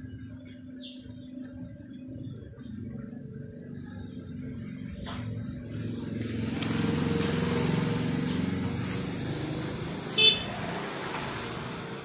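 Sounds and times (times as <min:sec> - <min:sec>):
vehicle engine passing by: 0:03.0 - 0:12.0.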